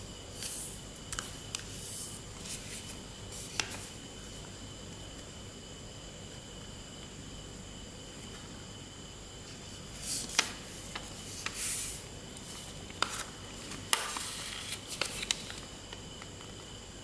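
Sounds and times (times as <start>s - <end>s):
paper folding and crinkling: 1.1s - 4.0s, 9.9s - 15.7s.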